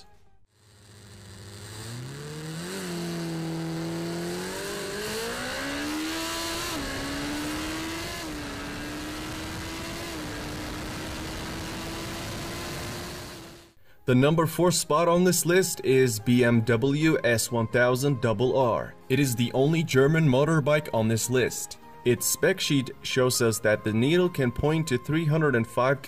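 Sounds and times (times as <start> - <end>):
motorcycle engine accelerating: 0.0 - 13.8.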